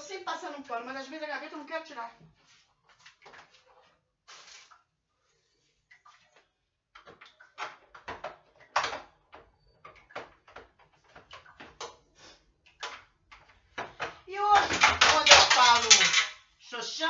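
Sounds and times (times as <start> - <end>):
plastic drawers knocking and clattering: 7.0 - 12.0, 12.8 - 16.3.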